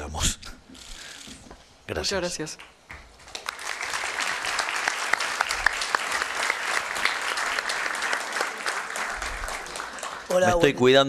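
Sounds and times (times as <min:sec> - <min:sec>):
audience applauding: 0:02.9 - 0:10.8.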